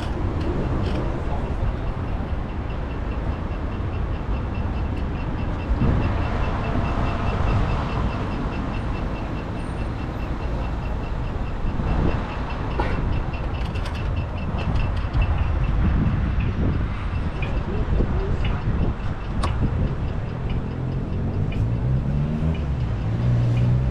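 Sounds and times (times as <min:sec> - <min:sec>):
bicycle road rumble: 0:00.0 - 0:23.9
light regular ticking: 0:00.0 - 0:23.9
wind on microphone: 0:05.5 - 0:08.3, 0:11.6 - 0:21.7.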